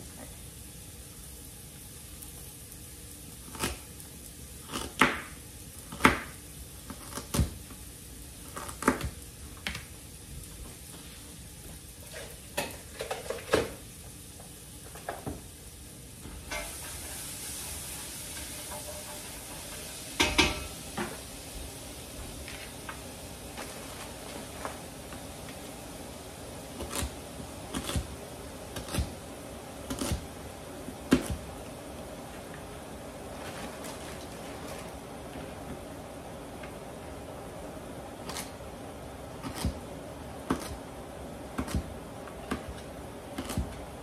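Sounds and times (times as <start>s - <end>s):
range hood fan hissing: 0.0s - 44.0s
knife chopping on plastic board: 29.9s - 30.3s, 31.1s - 31.5s, 40.4s - 40.8s, 41.6s - 41.9s, 43.4s - 43.8s.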